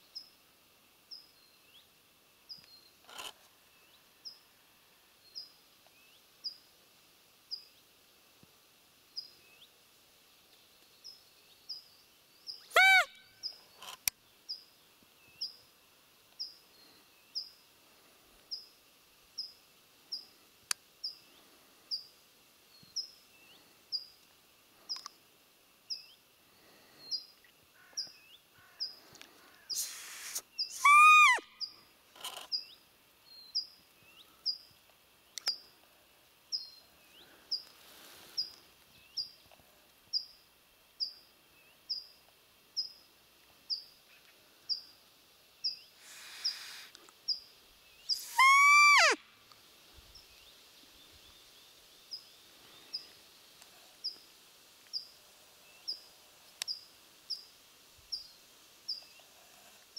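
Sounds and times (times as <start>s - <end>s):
rustle: 0.0s - 59.9s
deer call squeal: 12.7s - 13.3s, 29.8s - 31.5s, 48.1s - 49.2s
small bird chirping: 29.6s - 34.7s, 45.6s - 49.2s.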